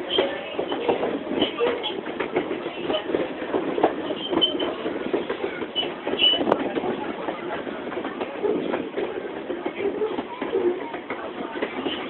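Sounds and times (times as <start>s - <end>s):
clicks and knocks of train: 0.0s - 12.0s
train wheels rumbling on rail: 0.0s - 12.0s
short high squeaks: 4.2s - 4.8s.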